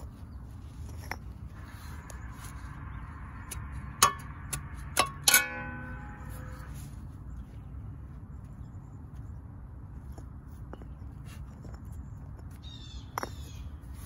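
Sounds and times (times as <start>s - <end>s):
metallic ring: 3.3s - 7.0s
metal spade knocking into soil: 3.5s - 6.6s.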